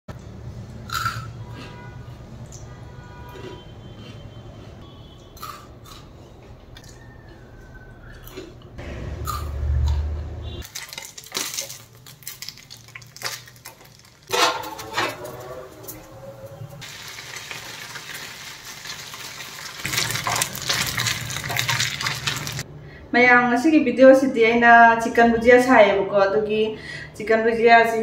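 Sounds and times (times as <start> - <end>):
oil sizzling: 10.6 - 22.6
spoon scraping metal pan: 14.3 - 16.7.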